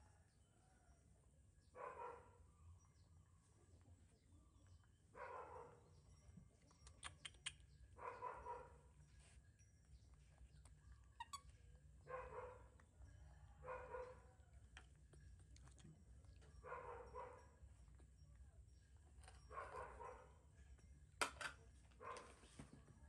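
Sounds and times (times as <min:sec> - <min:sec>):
dog barking faintly: 0:01.8 - 0:02.5, 0:08.0 - 0:09.0, 0:12.0 - 0:14.4, 0:16.5 - 0:17.6, 0:21.9 - 0:23.0.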